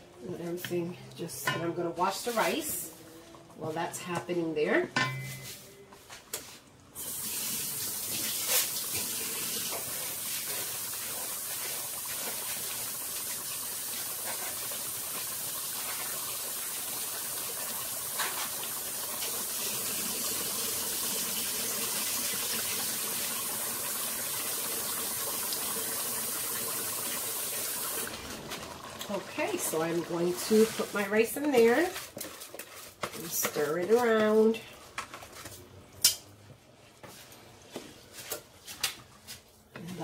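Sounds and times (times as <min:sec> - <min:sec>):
tap water running: 0:07.0 - 0:32.4.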